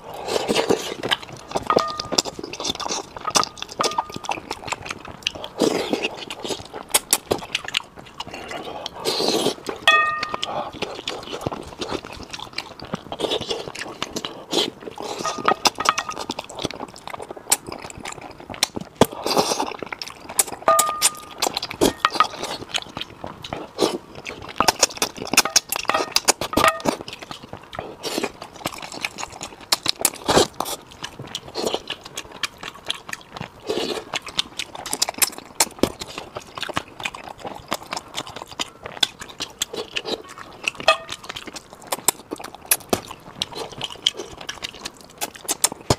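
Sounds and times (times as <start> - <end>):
wet chewing and lip-smacking: 0.0 - 45.9
chopsticks clinking on metal bowl: 1.6 - 4.5, 9.8 - 10.6, 15.2 - 16.4, 20.6 - 22.6, 24.6 - 27.0, 40.8 - 41.3.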